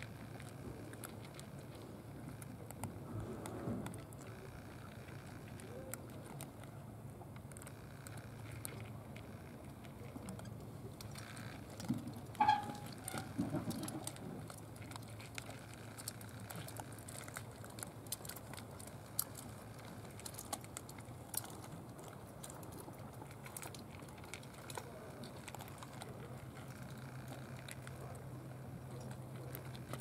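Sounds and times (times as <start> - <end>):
brief pitched squeak: 12.4 - 13.3
cat crunching dry kibble: 13.4 - 30.0.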